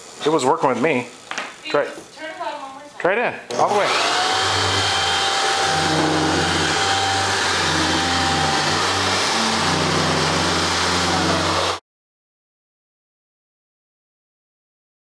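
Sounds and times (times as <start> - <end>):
electric blower whirring: 3.5 - 11.8.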